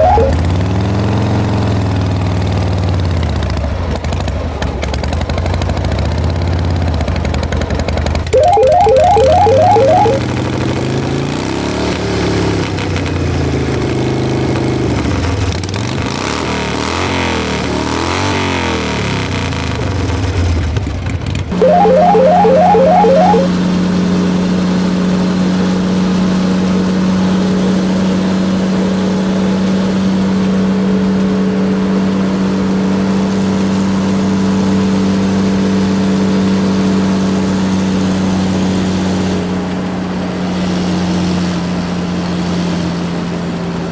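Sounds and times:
short beeps: 0.0s - 0.4s, 8.4s - 10.3s, 21.6s - 23.6s.

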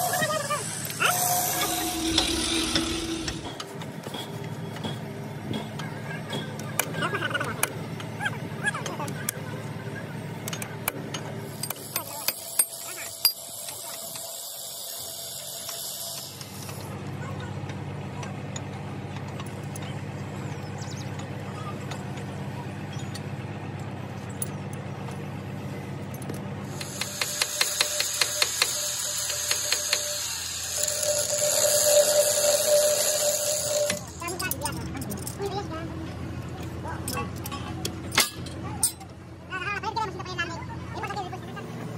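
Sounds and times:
ratchet wrench clicking: 26.7s - 35.4s
hand tool clinking on metal: 37.1s - 39.0s.

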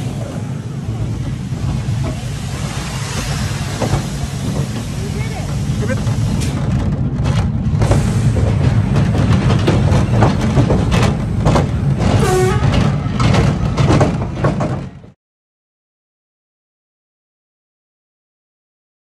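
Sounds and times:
roller coaster rattling clatter: 0.0s - 15.2s
roller coaster wheels rumbling: 0.0s - 15.2s.

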